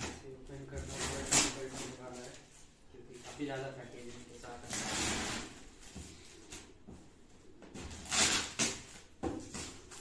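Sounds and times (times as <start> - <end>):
packing tape tearing off cardboard: 0.8 - 2.1, 4.6 - 5.8, 7.8 - 10.0.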